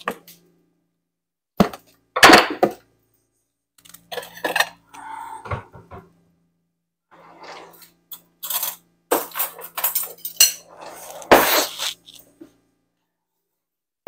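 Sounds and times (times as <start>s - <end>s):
cutlery clinking and clattering: 8.1s - 11.6s.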